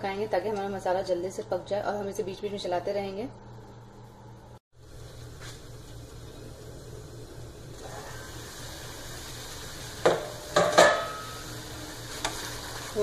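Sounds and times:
paste sizzling in a pan: 0:05.1 - 0:13.0
metal lid clanking: 0:10.1 - 0:11.4.

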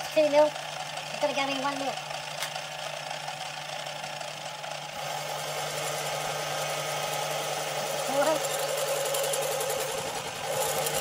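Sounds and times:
lathe motor hum: 0:00.0 - 0:11.0
lathe tool cutting metal: 0:02.9 - 0:11.0.

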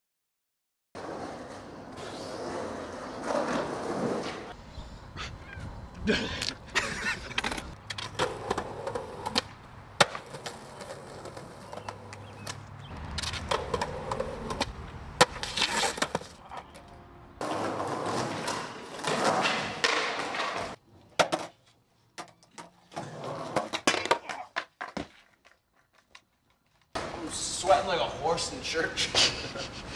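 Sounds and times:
skateboard wheels rolling on concrete: 0:01.0 - 0:29.9
skateboard clacks: 0:07.2 - 0:21.5, 0:22.2 - 0:26.3.

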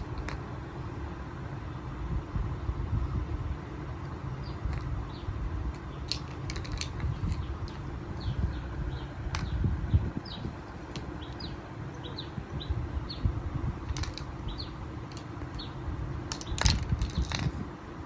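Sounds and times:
small birds chirping: 0:04.1 - 0:17.6.

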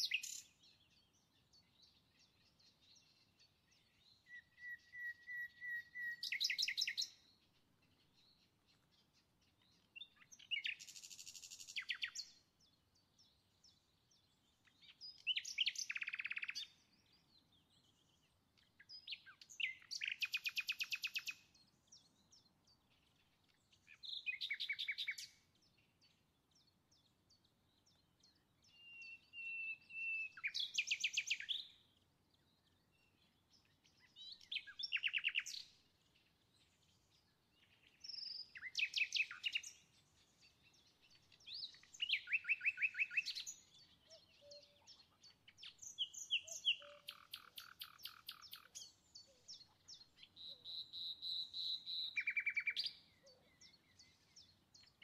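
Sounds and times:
songbird trilling and whistling: 0:00.0 - 0:00.8, 0:04.0 - 0:07.3, 0:10.0 - 0:12.3, 0:14.9 - 0:16.8, 0:18.8 - 0:21.4, 0:23.9 - 0:25.4, 0:28.7 - 0:31.8, 0:34.0 - 0:35.7, 0:37.9 - 0:39.8, 0:40.7 - 0:55.0.

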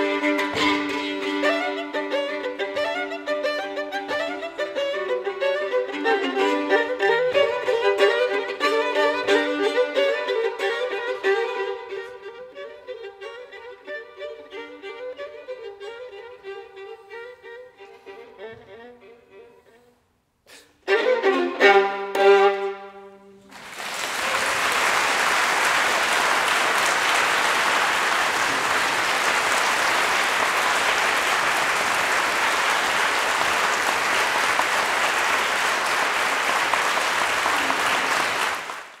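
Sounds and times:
violins playing chords: 0:00.0 - 0:19.9, 0:20.8 - 0:23.4
audience applause: 0:23.5 - 0:39.0.

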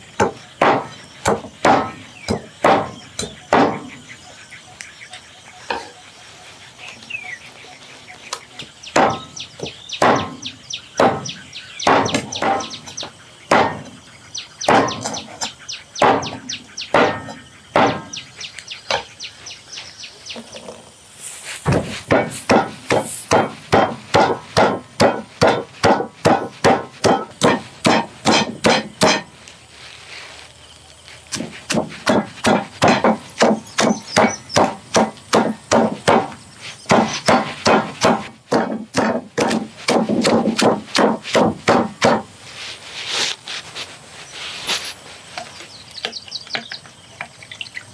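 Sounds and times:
knife chopping on wooden board: 0:09.0 - 0:10.4, 0:21.6 - 0:29.3, 0:31.3 - 0:42.3.

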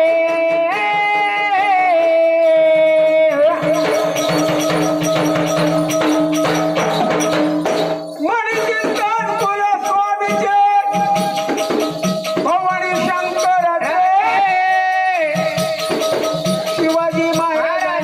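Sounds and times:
fast even percussion: 0:00.0 - 0:18.0.

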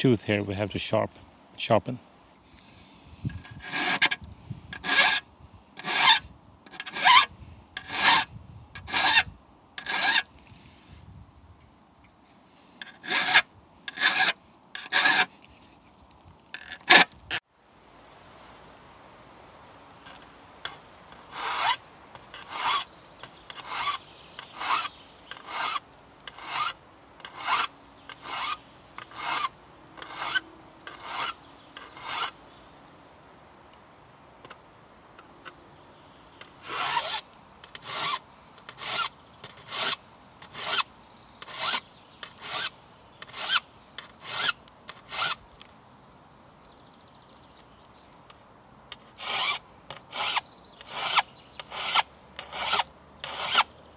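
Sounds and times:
hand file rasping on saw teeth: 0:03.3 - 0:04.2, 0:04.8 - 0:05.2, 0:05.8 - 0:09.2, 0:09.8 - 0:10.3, 0:12.8 - 0:15.4, 0:21.2 - 0:32.4, 0:36.6 - 0:37.2, 0:37.8 - 0:43.6, 0:44.2 - 0:45.4, 0:49.2 - 0:53.7.

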